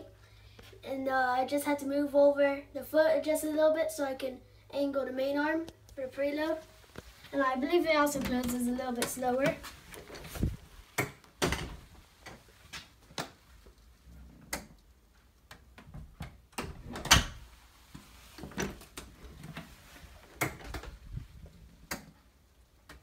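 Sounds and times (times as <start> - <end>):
door closing and latching: 8.2 - 12.4, 15.8 - 17.5.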